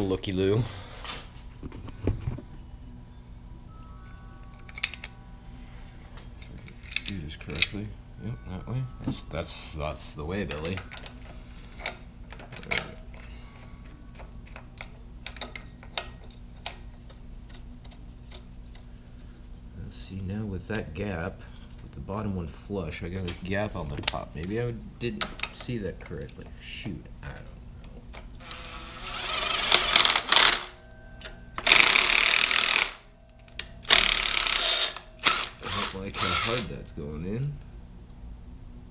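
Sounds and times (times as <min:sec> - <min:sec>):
steady low hum: 0:00.0 - 0:38.9
cordless power driver running: 0:28.4 - 0:30.7, 0:33.9 - 0:36.7.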